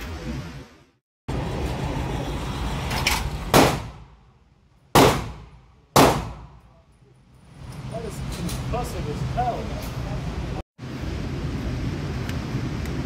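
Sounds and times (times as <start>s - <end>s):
steady background noise: 0.0s - 13.0s
gunshots echoing indoors: 5.0s - 6.6s.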